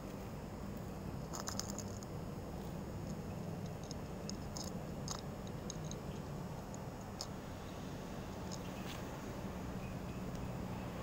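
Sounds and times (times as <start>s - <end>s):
cat crunching dry kibble: 1.2s - 2.2s, 3.0s - 7.3s.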